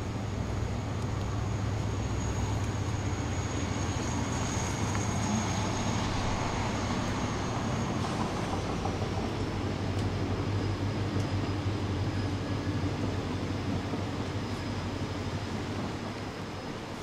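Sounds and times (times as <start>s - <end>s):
gentle rain hiss: 0.0s - 7.5s
thin high whine: 0.0s - 17.0s
traffic rumble: 0.0s - 17.0s.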